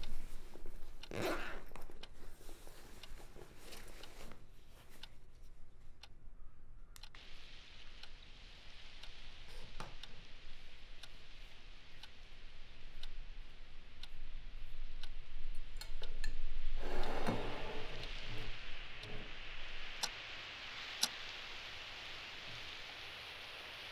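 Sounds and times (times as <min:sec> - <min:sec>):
wall clock ticking: 0:00.0 - 0:21.5
faint hiss: 0:00.0 - 0:23.9
ceramic plate scraping on wood: 0:16.8 - 0:19.3.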